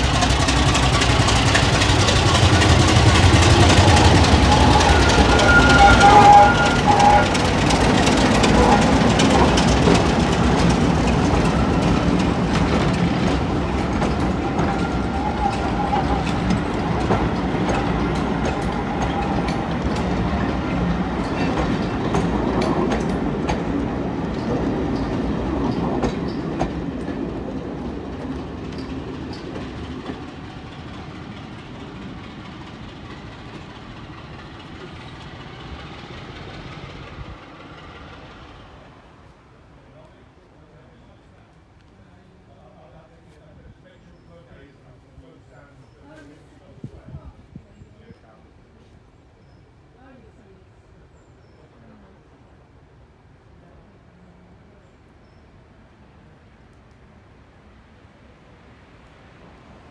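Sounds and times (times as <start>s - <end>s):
train wheels clacking over rail joints: 0.0s - 38.6s
diesel locomotive engine: 0.0s - 59.9s.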